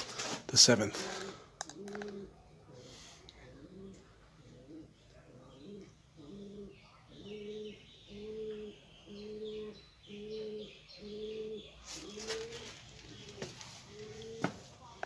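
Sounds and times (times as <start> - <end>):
pigeons cooing: 0.9 - 15.0
faint bird chirps: 2.8 - 14.4.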